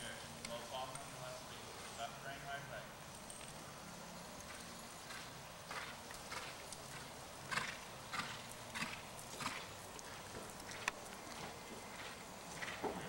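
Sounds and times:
horse hoofbeats on soft dirt: 4.4 - 13.0.

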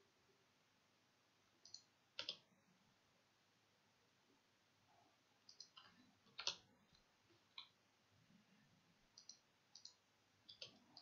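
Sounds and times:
keyboard and mouse clicks: 1.6 - 2.5, 5.5 - 7.8, 9.2 - 11.0.

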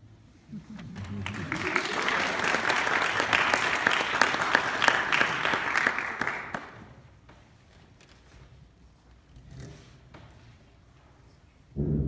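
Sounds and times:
audience applauding: 0.8 - 7.0.

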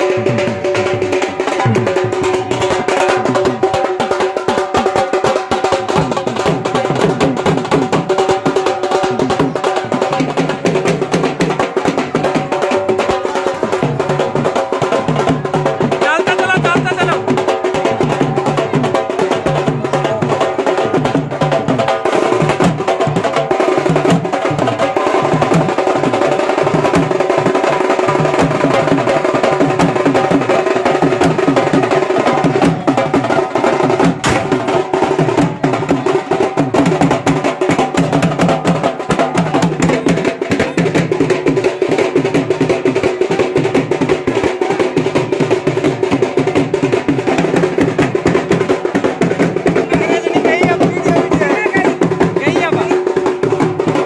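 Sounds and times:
drums beaten with sticks: 0.0 - 54.0.

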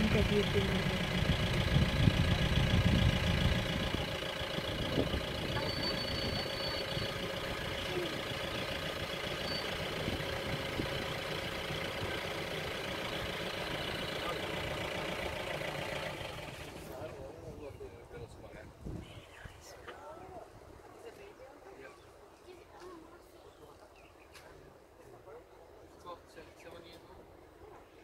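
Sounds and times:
vehicle engine idling: 0.0 - 18.3.

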